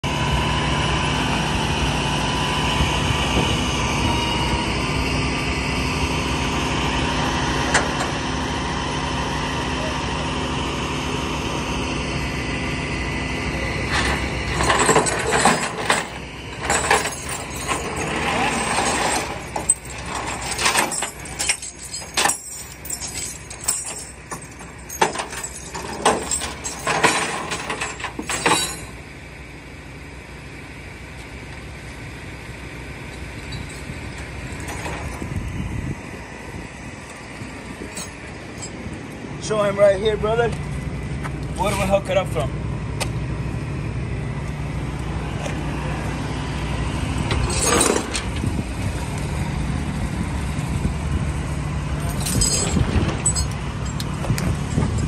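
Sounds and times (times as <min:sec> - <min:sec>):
tow truck engine running: 0:00.0 - 0:55.0
tow chain clanking on pavement: 0:13.8 - 0:29.1, 0:33.1 - 0:35.4, 0:37.0 - 0:40.8, 0:41.5 - 0:42.5, 0:47.2 - 0:49.2, 0:51.9 - 0:55.0.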